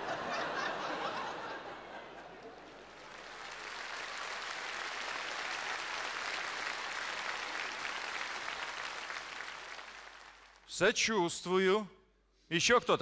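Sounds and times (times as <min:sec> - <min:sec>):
studio audience applauding: 0:02.4 - 0:10.7.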